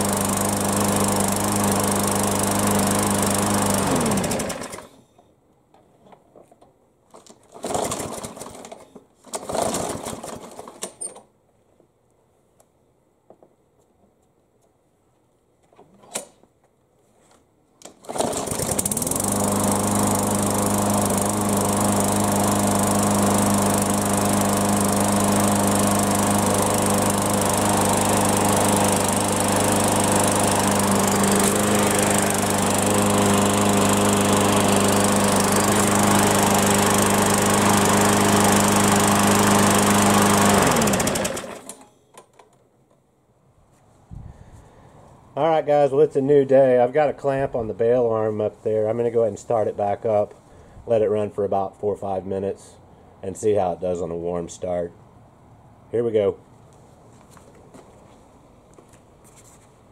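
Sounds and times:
lawn mower engine running: 0.0s - 5.0s, 7.4s - 10.8s, 17.9s - 41.9s
pull cord: 31.3s - 31.7s.

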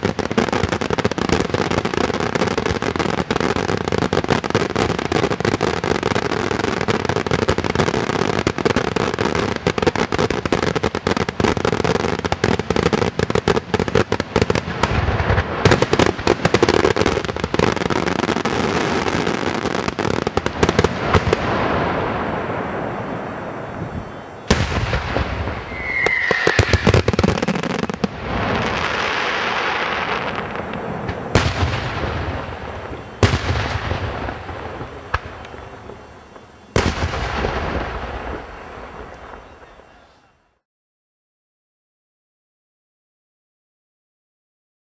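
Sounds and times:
fireworks crackling and bangs: 0.0s - 40.6s
falling firework whistle: 14.4s - 40.6s.

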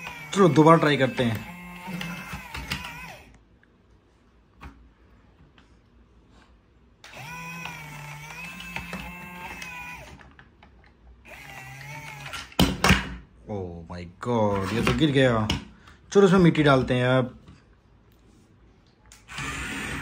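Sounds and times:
small electric motors whining: 0.0s - 3.4s, 7.0s - 10.4s, 11.2s - 12.6s, 19.2s - 20.0s.

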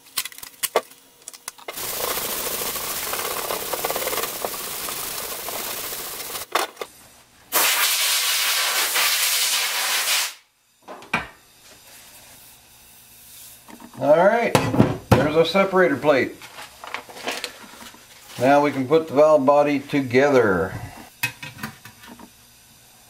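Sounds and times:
metal plate sanding rasp: 1.7s - 6.5s.

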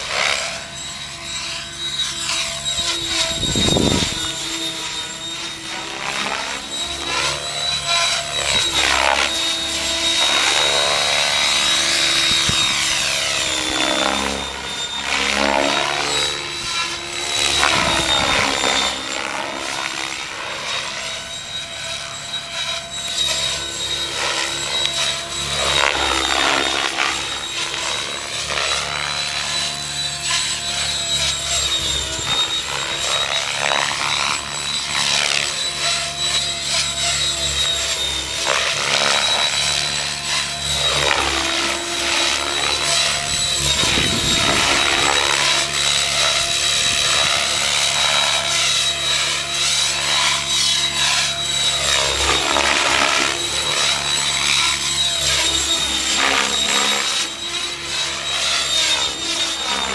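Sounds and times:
electric motor high whine: 0.0s - 59.9s
rotor blades whooshing: 0.3s - 19.7s, 20.6s - 59.9s.

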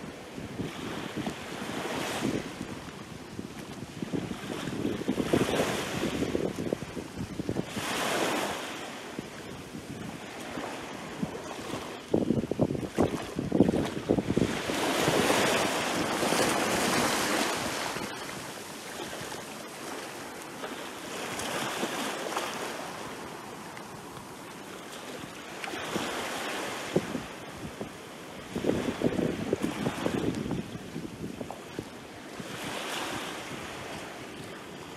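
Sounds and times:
small waves breaking on shore: 0.0s - 34.9s
water splashing: 12.7s - 26.2s.

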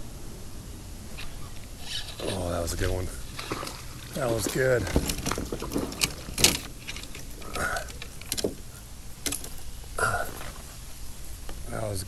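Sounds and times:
sharp clicks and light knocks: 2.8s - 9.7s.

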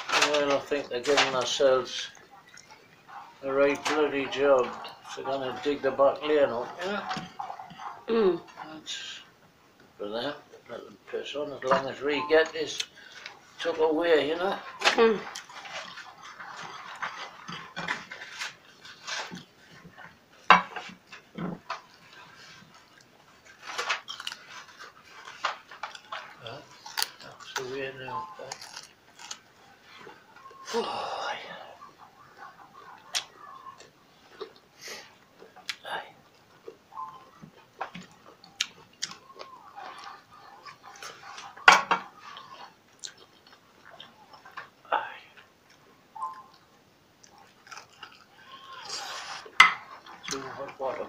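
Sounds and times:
chewing: 0.0s - 8.7s, 9.8s - 51.0s
fingers tearing meat: 28.4s - 29.5s.

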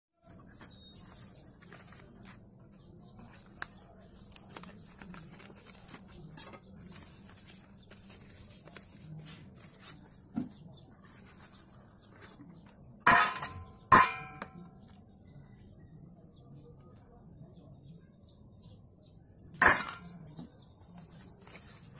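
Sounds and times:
paper and cardboard rustling: 0.3s - 12.8s, 20.9s - 21.9s
wrapper tearing: 3.3s - 6.2s.

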